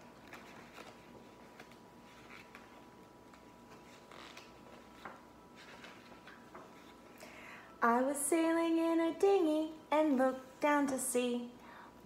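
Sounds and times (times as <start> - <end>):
paper and card rustling: 0.0 - 7.1.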